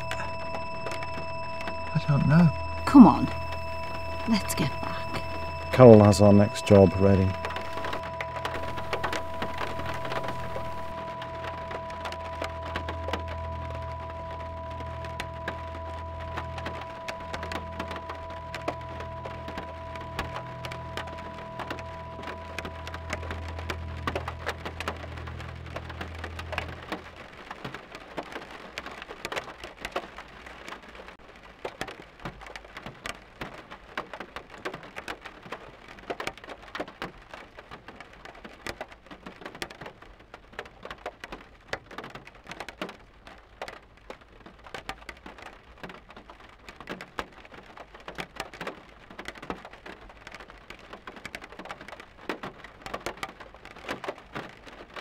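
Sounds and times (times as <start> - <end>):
low held tone: 0.0 - 27.0
steady rain falling: 0.0 - 55.0.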